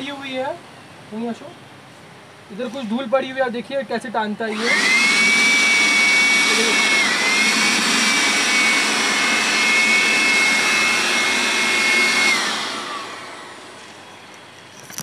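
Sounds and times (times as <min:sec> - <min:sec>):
blower motor whine and air rush: 0:04.5 - 0:15.0.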